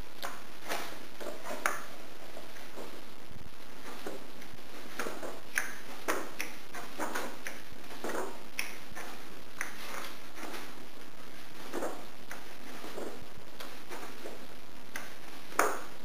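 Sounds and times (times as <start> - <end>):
background hiss: 0.0 - 16.0
book pages turning: 3.8 - 14.4.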